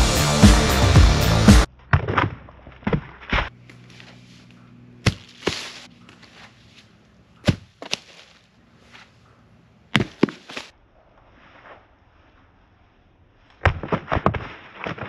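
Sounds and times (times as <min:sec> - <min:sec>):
logs knocking onto pile: 0:05.0 - 0:05.9, 0:07.4 - 0:08.3, 0:09.9 - 0:10.7.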